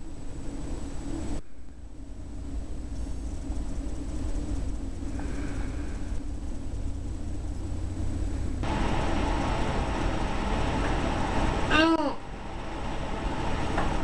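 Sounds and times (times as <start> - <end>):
low rumbling background noise: 0.0 - 14.0.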